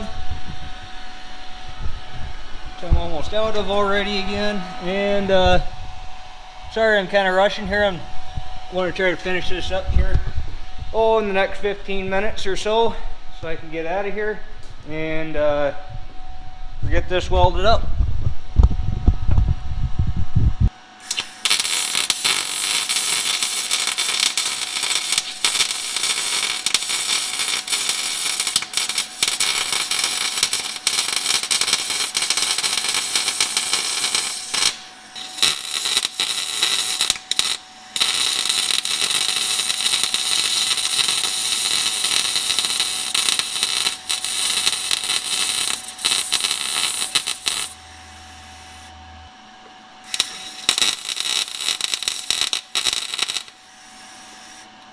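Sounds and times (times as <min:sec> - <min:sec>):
low rumble: 0:00.0 - 0:20.7
welding arc crackling hiss: 0:21.0 - 0:48.9, 0:50.0 - 0:54.9.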